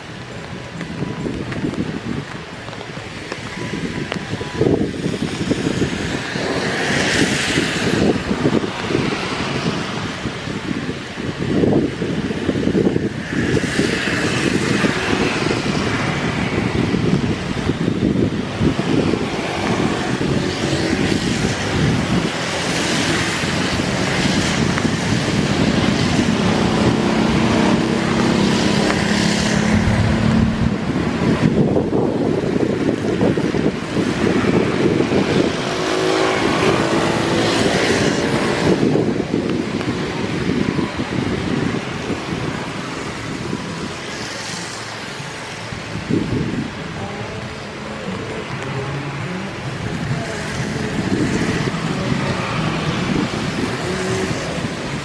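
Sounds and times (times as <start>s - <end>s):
wind buffeting microphone: 0.0s - 55.0s
jet engines roaring: 24.7s - 31.9s.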